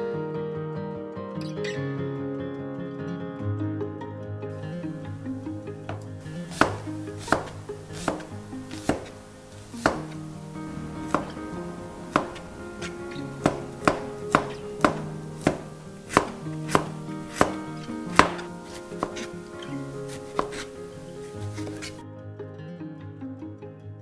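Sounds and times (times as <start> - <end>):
knife chopping on cutting board: 5.9 - 10.3, 11.1 - 11.4, 12.1 - 22.0.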